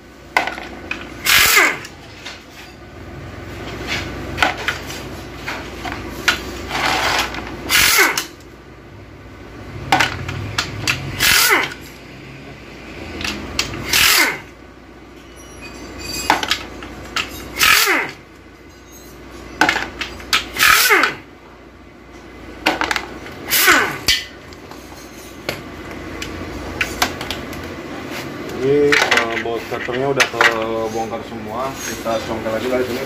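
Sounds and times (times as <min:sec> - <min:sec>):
pneumatic impact wrench bursts: 0:01.0 - 0:02.0, 0:06.7 - 0:08.4, 0:10.9 - 0:12.0, 0:13.6 - 0:14.6, 0:16.2 - 0:18.2, 0:20.3 - 0:21.3, 0:23.4 - 0:24.3.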